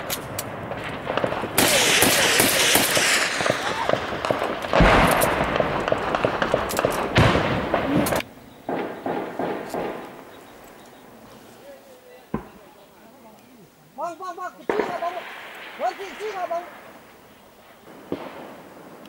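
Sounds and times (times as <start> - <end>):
rifle shots cracking: 0.0 - 10.8, 14.6 - 17.1
heavy blasts with rolling echo: 0.0 - 11.3, 14.0 - 19.0
people shouting: 1.6 - 4.2.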